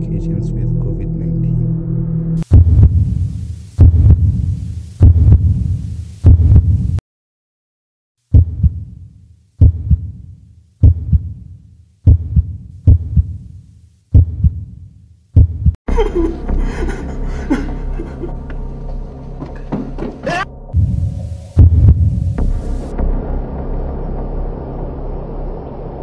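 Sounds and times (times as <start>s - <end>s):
heartbeat thumps: 2.4s - 3.1s, 3.8s - 5.6s, 6.2s - 7.0s, 8.3s - 9.0s, 9.6s - 10.2s, 10.8s - 11.4s, 12.0s - 13.4s, 14.1s - 14.8s, 15.4s - 15.8s, 20.8s - 22.7s
low hum: 20.5s - 26.0s.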